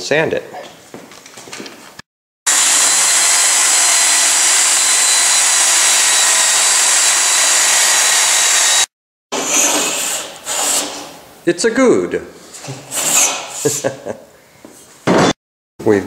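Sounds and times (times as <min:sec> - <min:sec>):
cordless drill motor whine: 0:02.5 - 0:08.9.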